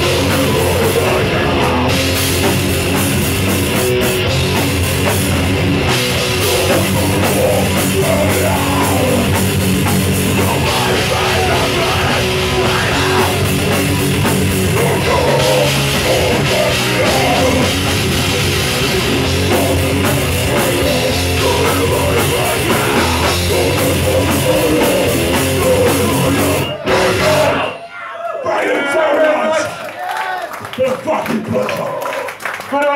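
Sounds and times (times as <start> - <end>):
pounding drum kit: 0.0 - 27.7
bass guitar: 0.0 - 27.8
distorted guitar: 0.0 - 27.8
shouted vocals: 6.2 - 9.4, 10.3 - 13.9, 14.6 - 17.9, 19.1 - 32.9.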